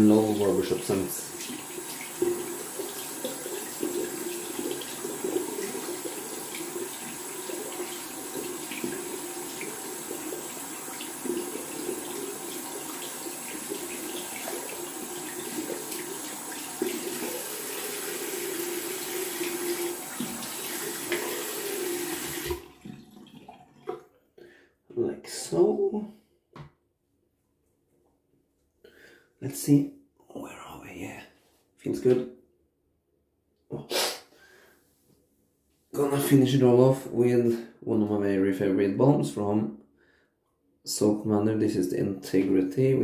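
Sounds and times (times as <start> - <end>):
tap running into sink: 1.5 - 10.2, 18.0 - 24.0.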